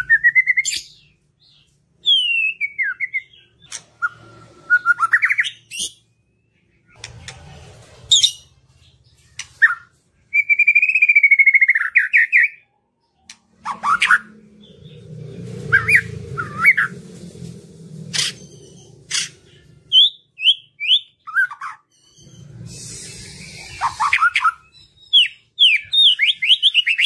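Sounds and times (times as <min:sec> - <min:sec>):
bird singing varied song: 0:08.1 - 0:27.0
low rumble: 0:13.3 - 0:20.0, 0:22.2 - 0:25.1.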